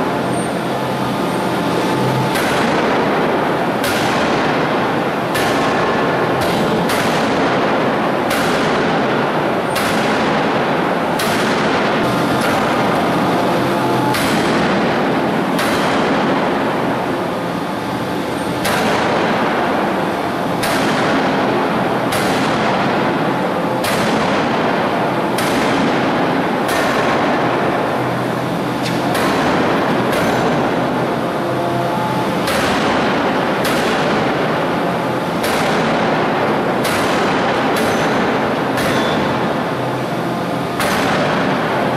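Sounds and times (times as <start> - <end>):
loud machine din: 0.0 - 41.9
forging hammer heavy blows: 1.3 - 17.0, 28.8 - 39.8.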